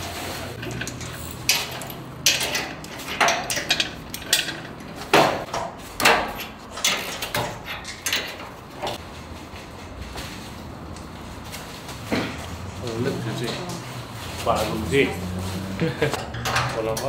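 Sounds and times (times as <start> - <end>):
metal clanks and knocks: 0.5 - 9.0, 16.1 - 17.0.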